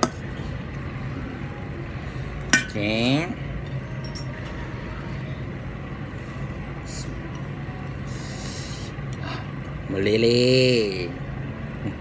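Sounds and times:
steady low hum: 0:00.0 - 0:12.0
tableware clinking on plate: 0:04.0 - 0:04.4.

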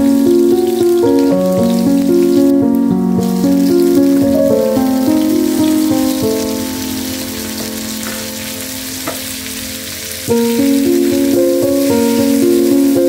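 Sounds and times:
background music with held notes: 0:00.0 - 0:13.0
vegetables sizzling in oil: 0:00.0 - 0:13.0.

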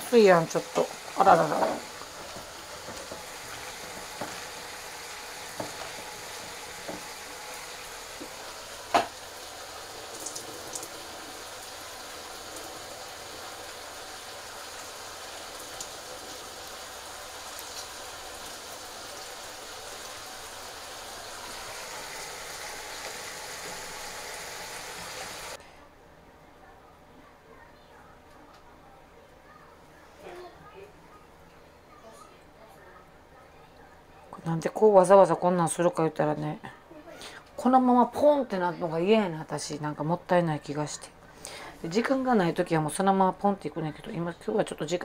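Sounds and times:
food frying in a pan: 0:00.0 - 0:25.6.

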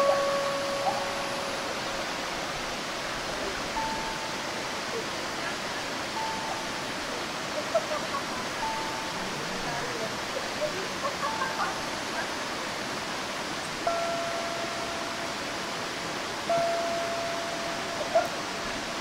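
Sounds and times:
faint clear single-pitch notes: 0:00.0 - 0:02.2, 0:16.4 - 0:18.8
waterfall rushing over rock: 0:00.0 - 0:19.0.

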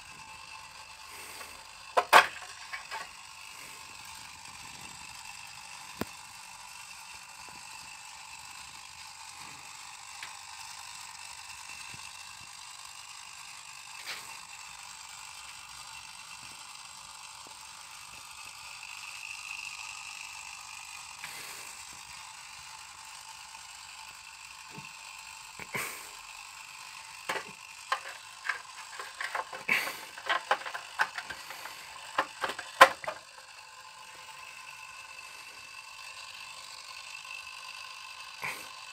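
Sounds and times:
hard plastic clicks and clatter: 0:01.9 - 0:03.1, 0:27.2 - 0:33.3.

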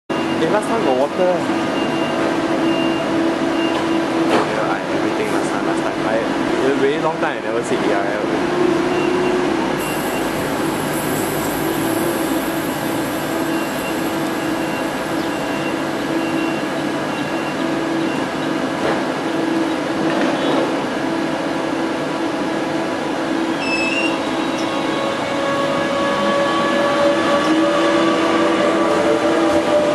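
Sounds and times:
electric train humming: 0:08.0 - 0:20.1, 0:20.7 - 0:29.9
train whining tones: 0:08.4 - 0:19.6, 0:23.2 - 0:29.9.

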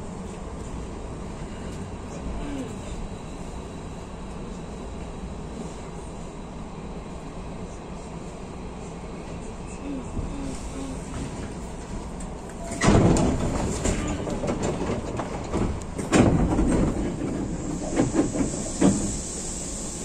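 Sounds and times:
electric train rumbling on rails: 0:00.0 - 0:20.0
train wheels clanking over rail joints: 0:11.1 - 0:19.5.

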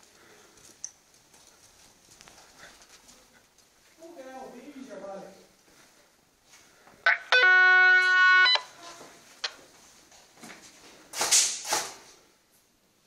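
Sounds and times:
loud alarm tone: 0:07.1 - 0:09.0.

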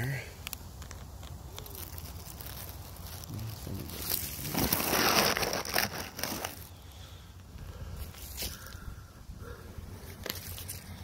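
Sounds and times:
dry leaves rustling and crunching: 0:00.5 - 0:06.8, 0:10.0 - 0:11.0.

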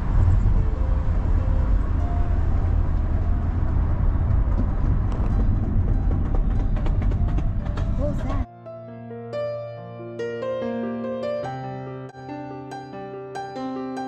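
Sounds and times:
car cabin road noise: 0:00.0 - 0:08.5.

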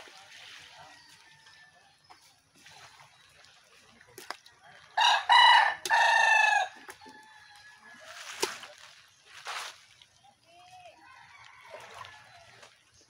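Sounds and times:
rooster crowing: 0:05.0 - 0:07.9.

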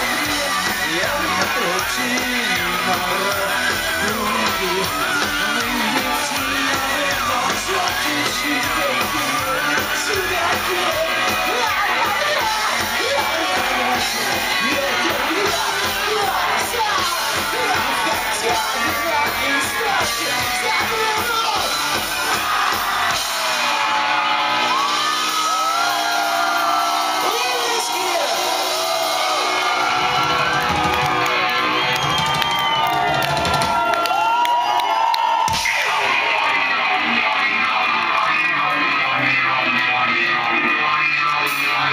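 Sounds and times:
person singing: 0:00.0 - 0:21.6
crowd shouting: 0:00.0 - 0:40.5
rock band playing live: 0:00.0 - 0:41.9.

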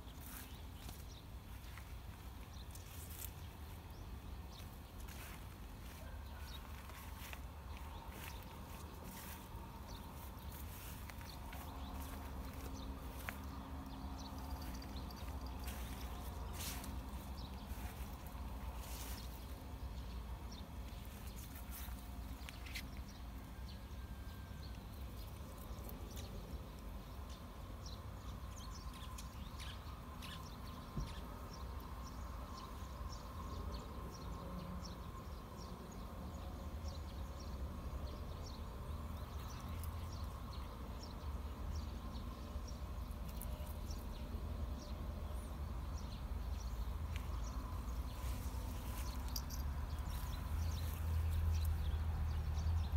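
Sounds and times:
light ticks and rustles: 0:00.1 - 0:27.5, 0:42.9 - 0:44.4, 0:46.4 - 0:52.9
steady low rumble: 0:00.2 - 0:23.4.

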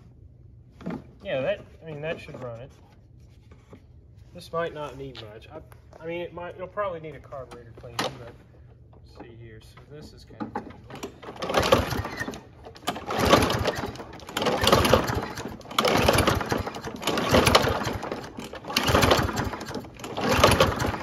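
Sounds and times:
mower engine cranking with pull rope: 0:10.6 - 0:21.0.

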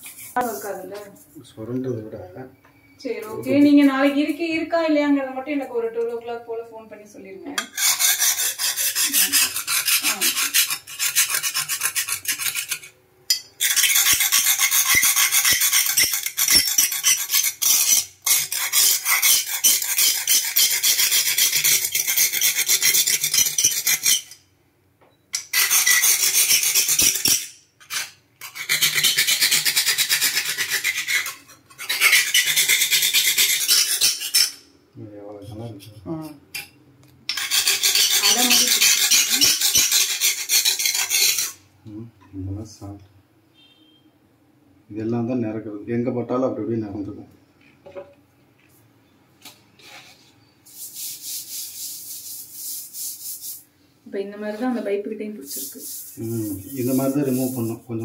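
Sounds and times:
hand tool scraping countertop: 0:07.6 - 0:12.9, 0:13.6 - 0:24.4, 0:37.3 - 0:41.6, 0:49.8 - 0:53.6, 0:55.5 - 0:58.0.

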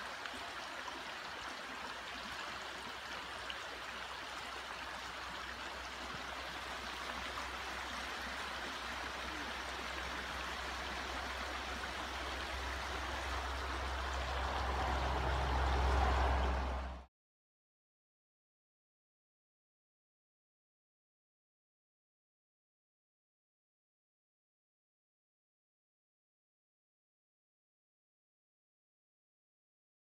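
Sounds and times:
creek water rushing and trickling: 0:00.0 - 0:17.1.

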